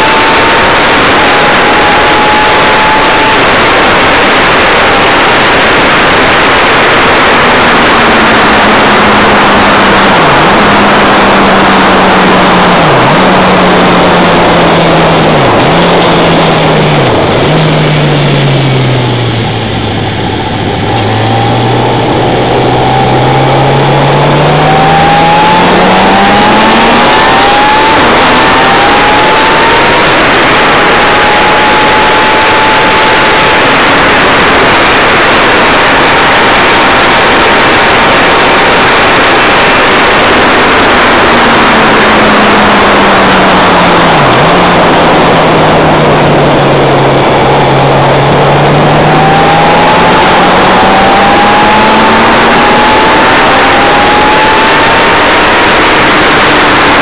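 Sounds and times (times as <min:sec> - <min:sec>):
race car engine: 0:00.0 - 0:57.0
wind rush on microphone: 0:00.0 - 0:57.0.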